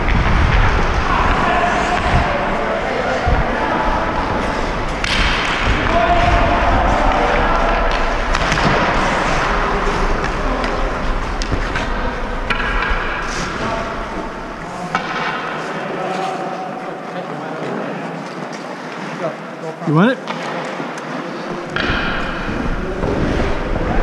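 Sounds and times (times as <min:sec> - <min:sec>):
low microphone rumble: 0:00.0 - 0:14.8
hockey sticks and puck clacking: 0:00.0 - 0:16.6, 0:20.2 - 0:24.0
skates on ice: 0:00.0 - 0:17.4, 0:20.2 - 0:24.0.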